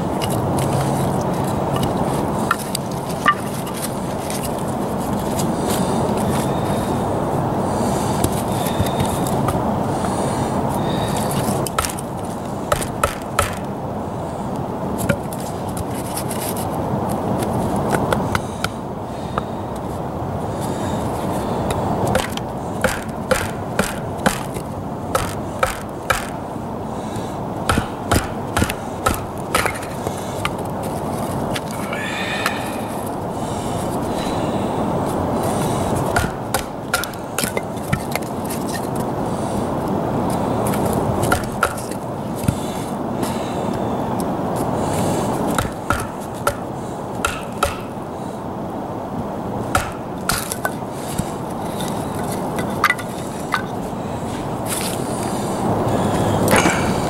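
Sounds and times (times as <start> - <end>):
sharp knocks: 12.7 - 13.6, 22.1 - 24.5, 25.1 - 26.4, 27.7 - 29.9, 36.2 - 38.0, 45.6 - 46.6, 47.2 - 47.9, 49.7 - 50.5.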